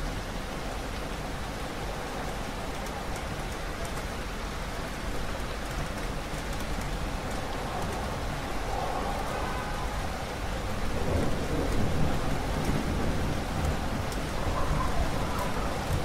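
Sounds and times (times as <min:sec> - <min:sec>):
heavy rain: 0:00.0 - 0:16.0
thunder rumbling: 0:07.3 - 0:16.0.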